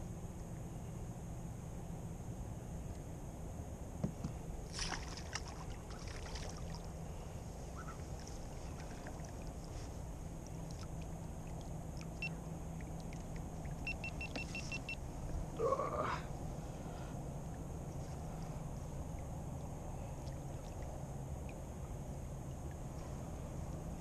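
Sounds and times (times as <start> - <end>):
steady low rumble: 0.0 - 24.0.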